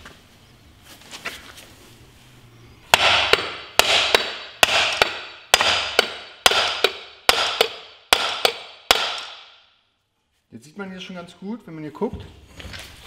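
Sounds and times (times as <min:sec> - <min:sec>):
hammer striking metal shaft: 0:02.9 - 0:09.6.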